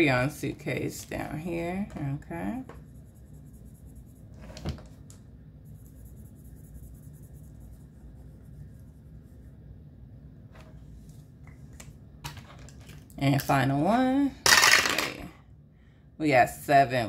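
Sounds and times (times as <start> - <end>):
low room hum: 0.0 - 17.0
marker rubbing on paper: 1.4 - 4.6, 5.6 - 9.7.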